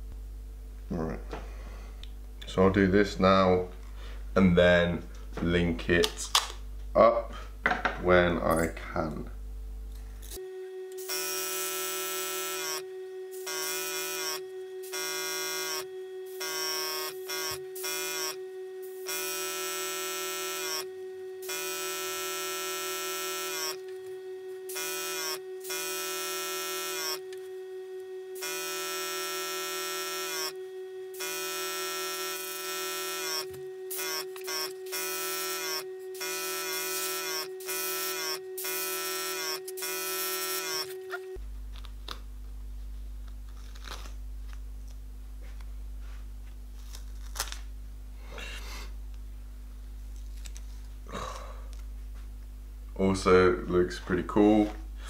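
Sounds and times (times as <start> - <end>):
low hum: 0.0 - 19.8, 27.2 - 28.5, 30.5 - 31.2
airbrush compressor whining: 10.2 - 41.4.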